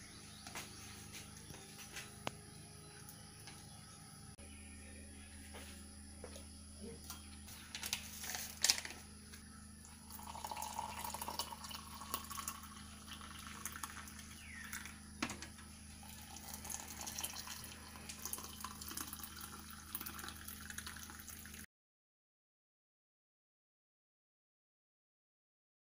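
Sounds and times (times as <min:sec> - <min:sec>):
water pouring into mugs: 0:09.8 - 0:15.0, 0:16.0 - 0:21.6.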